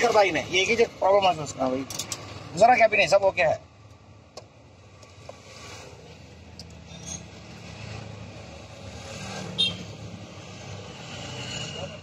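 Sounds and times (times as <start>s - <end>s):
clicks and taps of wiring connectors: 3.8s - 5.4s.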